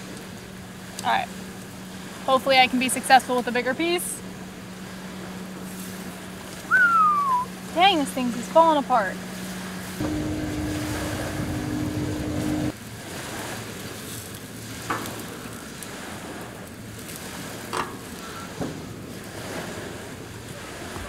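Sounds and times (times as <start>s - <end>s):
steady hum: 0.0s - 12.8s.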